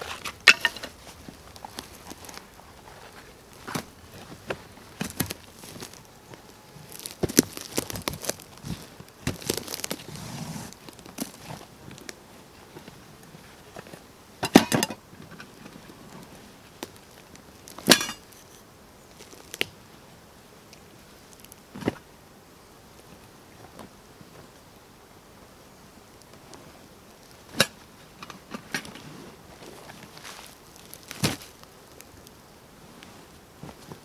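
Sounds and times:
items knocking on ground: 0:00.0 - 0:02.4, 0:03.6 - 0:10.0, 0:14.4 - 0:15.0, 0:17.8 - 0:18.3
canvas rustling and crinkling: 0:00.0 - 0:19.7, 0:26.3 - 0:34.0.

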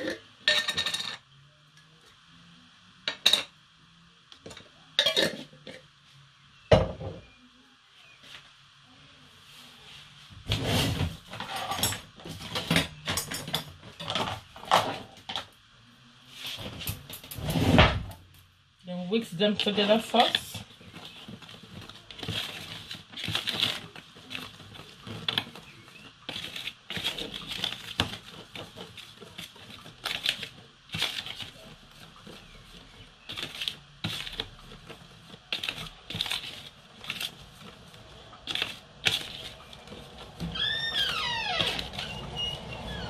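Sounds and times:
whisk scraping plastic tub: 0:19.4 - 0:41.0.

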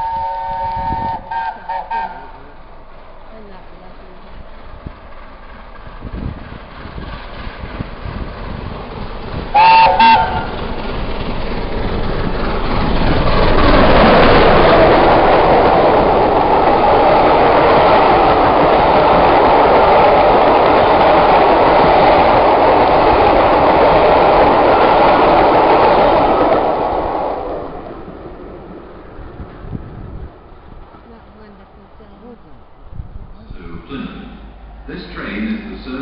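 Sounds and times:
locomotive horn toots: 0:00.0 - 0:02.5, 0:09.5 - 0:10.6
train wheels on rails: 0:00.0 - 0:36.0.

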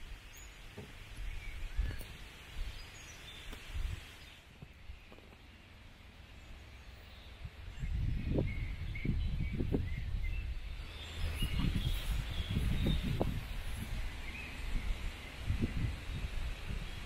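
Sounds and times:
faint bird chirps: 0:06.3 - 0:17.0.

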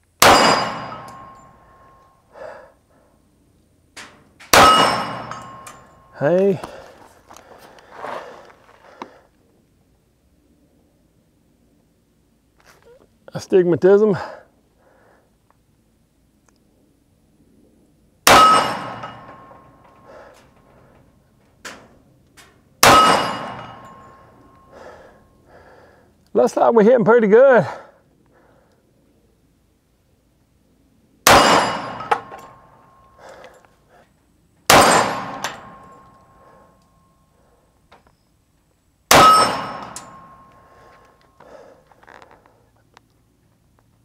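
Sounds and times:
pistol shot: 0:00.2 - 0:01.4, 0:04.5 - 0:05.7, 0:18.2 - 0:19.3, 0:22.8 - 0:24.0, 0:31.2 - 0:32.4, 0:34.7 - 0:36.0, 0:39.1 - 0:40.4
short breath: 0:02.3 - 0:03.2, 0:14.2 - 0:15.4, 0:24.7 - 0:26.1, 0:27.6 - 0:28.8, 0:40.6 - 0:42.7.

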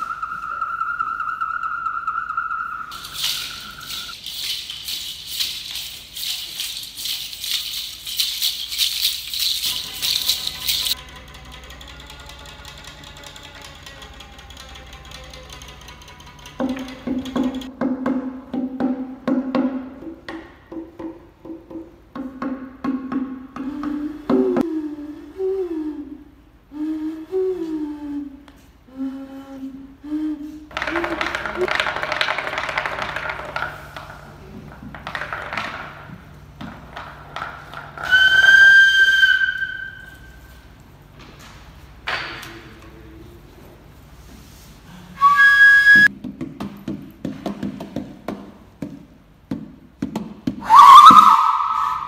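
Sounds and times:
steady whistling tone: 0:00.0 - 0:06.8, 0:38.0 - 0:40.6, 0:45.2 - 0:46.1, 0:50.6 - 0:52.0
hand rattle clicking: 0:02.9 - 0:17.7.

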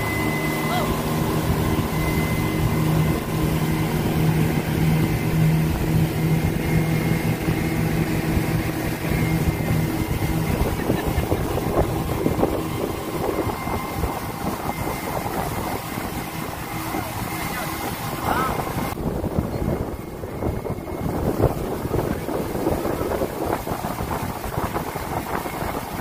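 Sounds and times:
speedboat engine running: 0:00.0 - 0:26.0
water rushing: 0:00.0 - 0:26.0
wind noise: 0:00.0 - 0:26.0.

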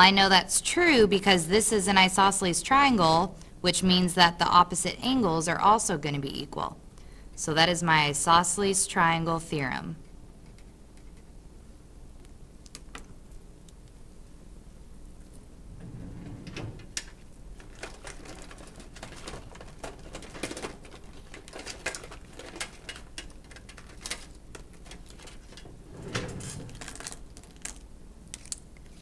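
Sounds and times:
low muffled rumble: 0:15.5 - 0:16.8.

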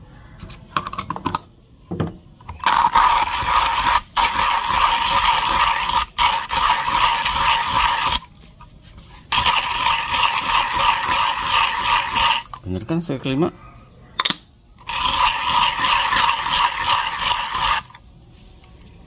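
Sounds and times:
hand coffee grinder crunching: 0:02.5 - 0:08.4, 0:09.3 - 0:12.6, 0:14.8 - 0:18.0.

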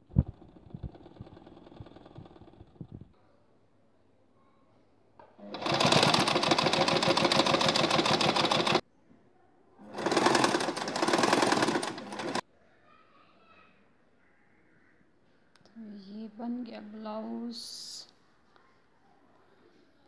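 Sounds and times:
sewing machine stitching: 0:00.0 - 0:03.1, 0:05.4 - 0:08.8, 0:09.8 - 0:12.4.

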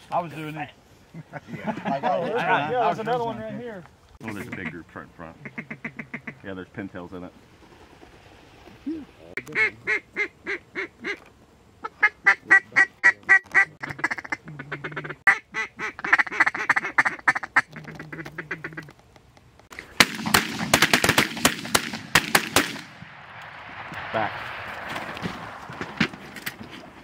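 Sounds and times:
ducks quacking: 0:04.2 - 0:06.7, 0:08.6 - 0:19.0
shotgun fire: 0:19.9 - 0:26.2.

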